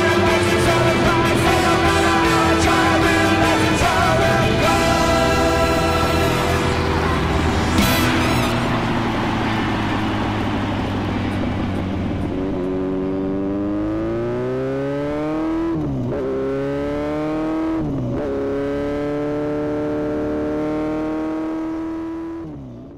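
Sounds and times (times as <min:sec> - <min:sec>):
motorcycle engine revving: 0:00.0 - 0:22.9
wind rush: 0:04.4 - 0:13.4.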